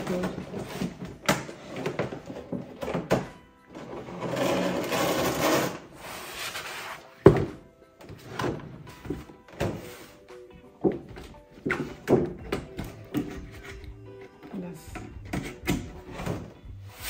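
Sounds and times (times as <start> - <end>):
quiet music: 0.0 - 17.0
packaging rustling and scraping: 3.8 - 7.2.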